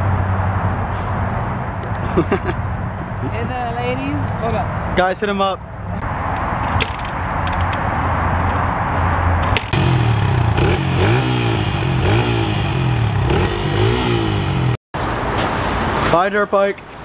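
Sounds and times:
dirt bike engine revving: 9.6 - 14.8.

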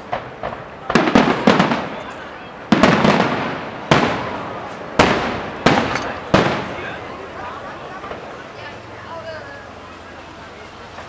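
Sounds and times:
fireworks bangs echoing: 0.0 - 8.5.

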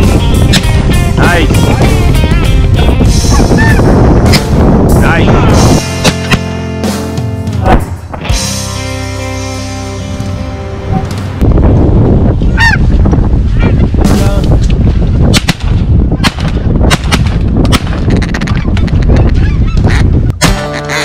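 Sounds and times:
wind rumble on microphone: 0.0 - 5.8, 10.0 - 20.4
geese honking: 3.3 - 3.9, 12.6 - 12.8, 18.1 - 21.0
sharp cracks: 6.0 - 6.5, 15.3 - 18.9.

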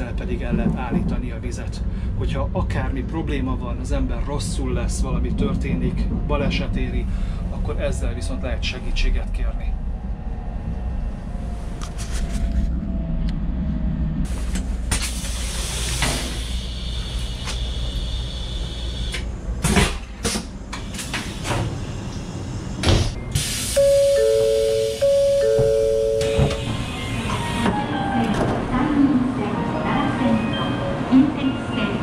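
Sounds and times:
low train rumble: 0.0 - 32.0
two-note electronic chime: 23.8 - 26.7.

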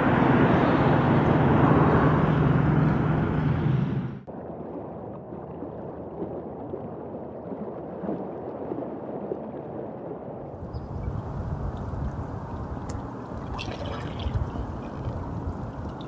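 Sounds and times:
river water gurgling: 10.5 - 16.0.

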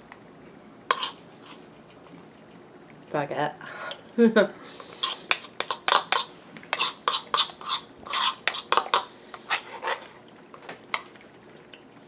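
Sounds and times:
metal spoon scraping a bowl: 0.9 - 1.6, 4.8 - 10.1.

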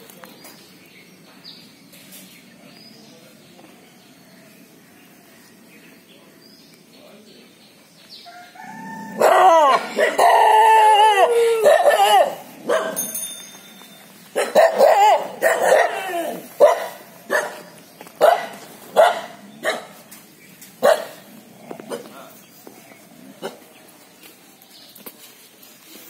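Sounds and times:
dogs barking and yelping: 9.1 - 13.2, 14.2 - 22.2.

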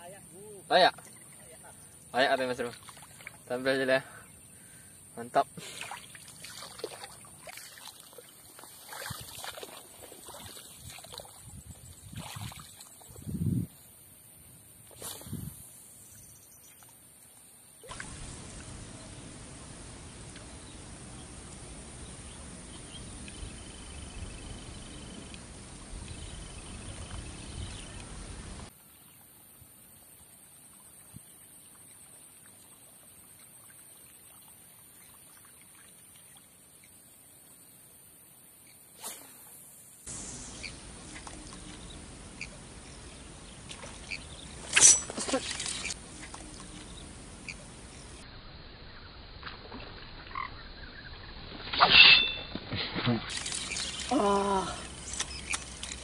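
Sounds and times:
faint outdoor background: 0.0 - 56.0
wind rumble on microphone: 10.7 - 13.8, 15.0 - 15.6, 18.0 - 28.7
insect buzzing: 38.6 - 43.2
frog croaking: 50.2 - 51.1.

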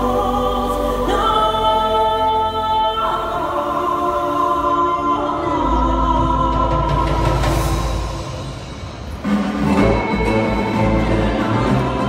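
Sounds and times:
choir holding sustained chords: 0.0 - 12.0.

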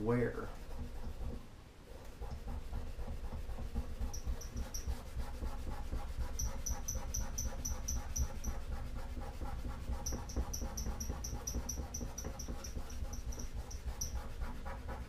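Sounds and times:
steel wool scrubbing metal: 2.0 - 15.0.

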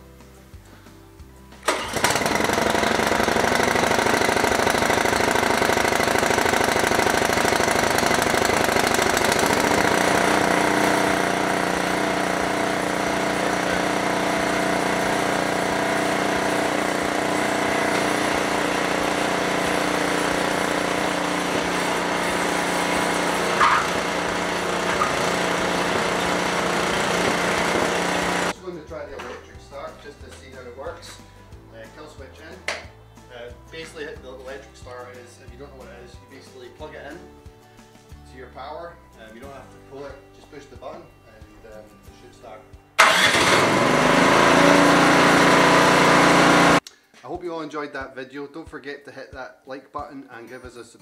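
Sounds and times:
snowblower engine running: 1.6 - 28.6, 43.0 - 46.8.

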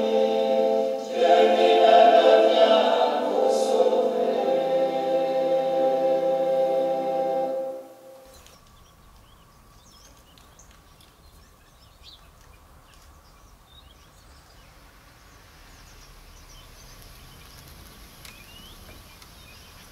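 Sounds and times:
small birds chirping: 8.2 - 19.9.

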